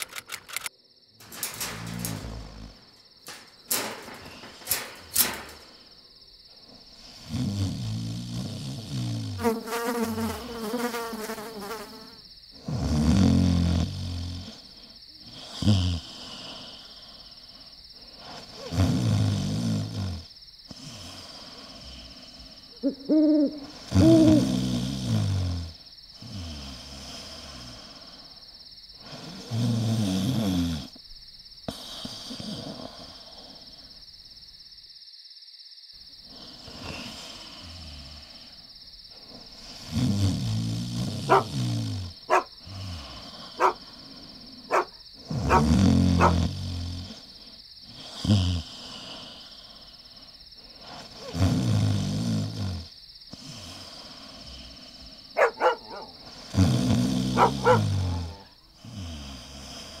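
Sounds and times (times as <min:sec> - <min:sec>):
insects chirring: 0:00.0 - 1:00.0
low hoots or moans: 0:22.7 - 0:25.0, 0:55.4 - 0:58.6.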